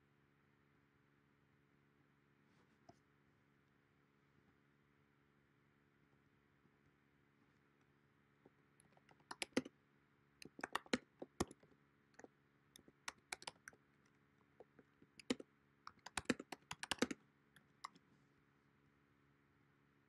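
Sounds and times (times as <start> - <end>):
computer keyboard typing: 8.8 - 9.7, 10.4 - 18.0.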